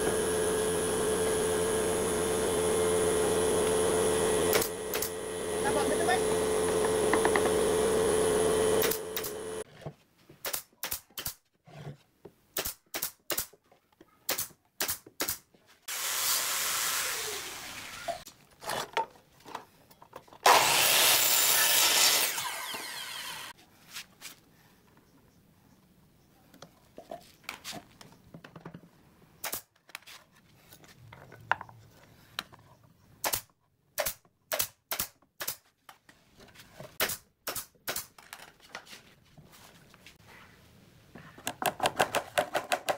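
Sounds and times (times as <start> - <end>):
power saw cutting a board: 0.0 - 9.6, 20.4 - 23.6
nail gun firing into wood: 4.5 - 5.2, 8.8 - 9.4, 10.4 - 11.4, 12.6 - 13.5, 14.3 - 15.4, 29.4 - 29.7, 33.2 - 35.6, 37.0 - 38.2.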